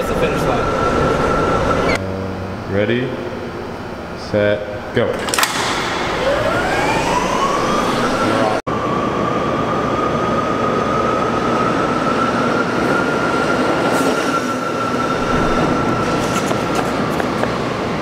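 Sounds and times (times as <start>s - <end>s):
tyre and running noise: 15.7s - 17.8s.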